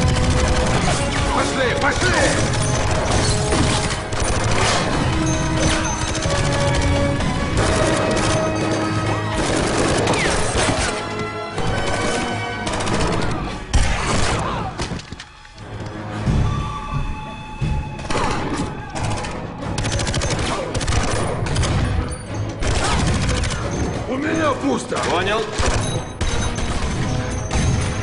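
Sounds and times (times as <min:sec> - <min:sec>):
gunfire: 0:00.0 - 0:15.2, 0:18.0 - 0:23.8, 0:25.0 - 0:28.0
background music: 0:00.0 - 0:28.0.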